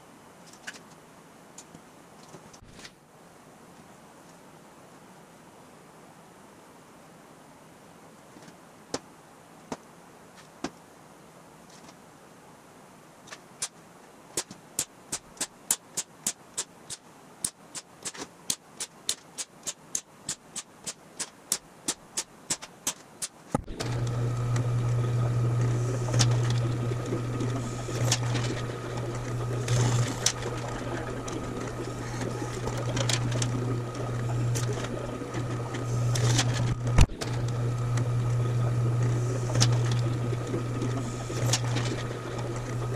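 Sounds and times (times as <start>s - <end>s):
drill press motor humming: 23.6s - 42.9s.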